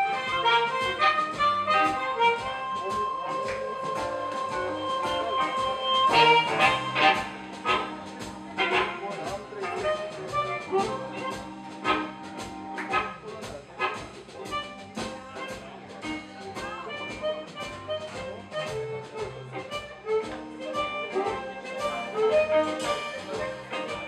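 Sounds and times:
electric guitar: 0.0s - 9.0s
amplified blues harmonica: 0.0s - 24.0s
drum hits: 0.0s - 24.0s.

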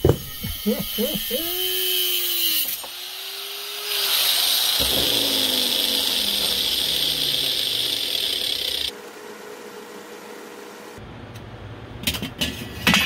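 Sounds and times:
angle grinder grinding metal: 0.0s - 9.0s
grinder motor winding down: 0.4s - 11.0s.

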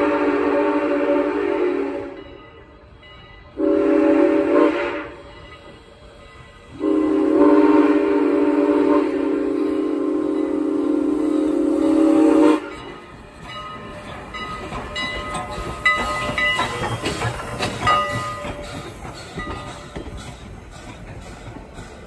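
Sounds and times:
steam whistle: 0.0s - 2.2s, 3.6s - 5.3s, 6.8s - 12.9s
rail noise: 0.0s - 22.0s
train running past: 0.0s - 22.0s.

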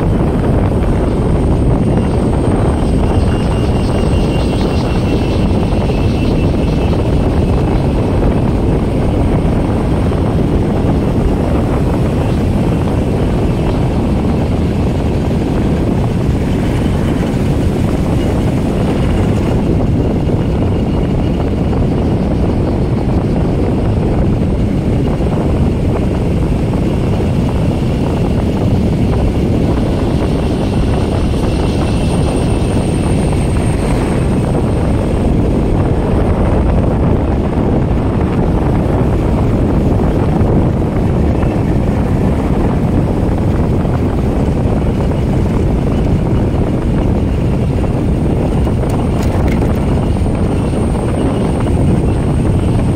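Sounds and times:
wind rushing over microphone: 0.0s - 52.9s
scooter engine cruising: 47.6s - 50.8s.

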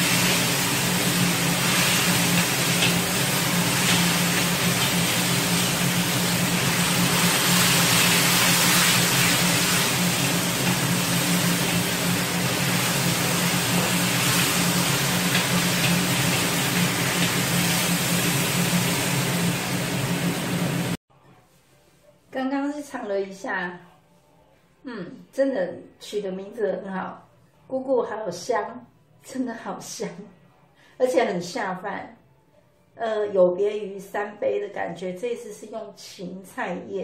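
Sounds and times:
vegetables sizzling in a wok: 0.0s - 21.0s.

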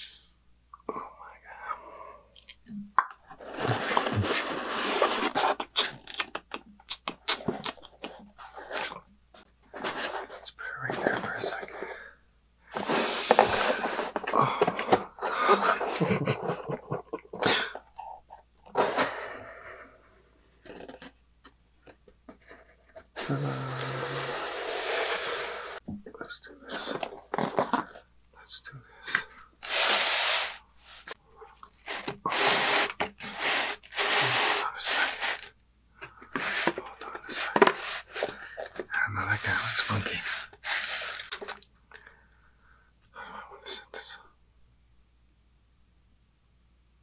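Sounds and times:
man whispered vocalising: 0.0s - 2.8s, 10.4s - 12.0s, 23.2s - 24.3s, 26.0s - 27.1s, 28.4s - 29.4s, 38.8s - 40.5s, 43.1s - 44.4s
cardboard box rustling and scraping: 3.4s - 5.7s, 9.7s - 10.4s, 36.4s - 38.8s
hissing exhalations: 11.8s - 15.6s, 23.2s - 25.8s.

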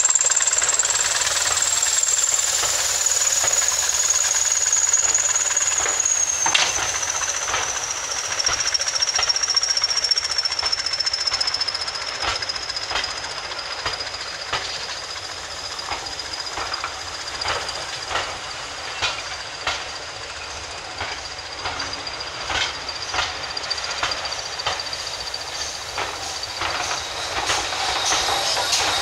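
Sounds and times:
thin high whine: 0.0s - 14.9s
train rumble: 0.0s - 29.0s
train wheels clicking over joints: 0.0s - 29.0s.

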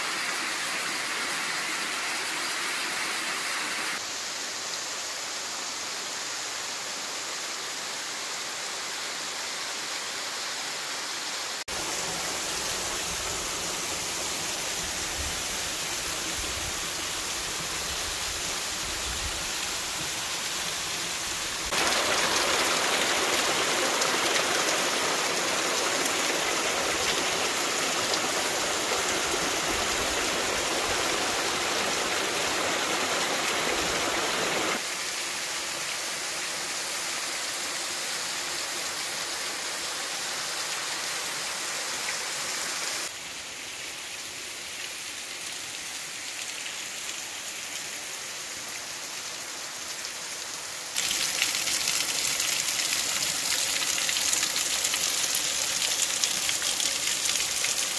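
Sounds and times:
waterfall pouring: 19.4s - 34.8s, 51.0s - 57.9s.

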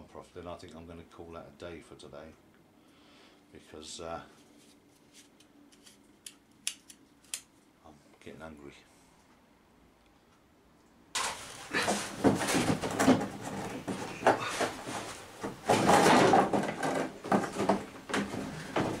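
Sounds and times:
plastic bumper rattling and scraping: 11.2s - 19.0s.

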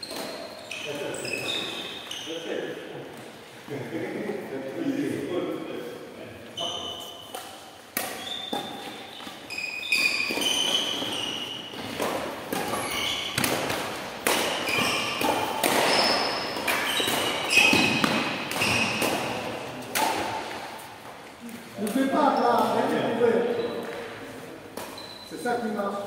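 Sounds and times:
rackets striking shuttlecock: 0.0s - 1.1s, 7.2s - 21.2s, 23.8s - 25.2s
shoes squeaking on court: 0.0s - 2.8s, 6.5s - 25.9s.

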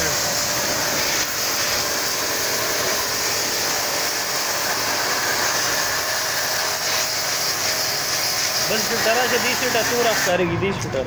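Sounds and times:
pressure washer spraying water: 0.0s - 10.4s.

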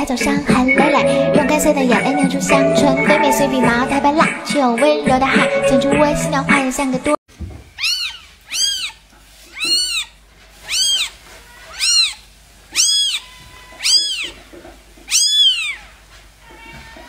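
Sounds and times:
kitten mewing: 7.8s - 14.4s, 15.1s - 15.9s.

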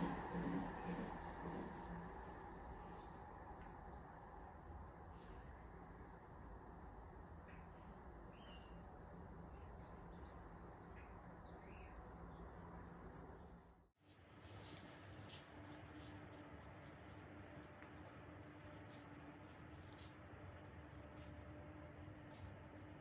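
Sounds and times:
faint bird chirps: 7.3s - 13.5s.

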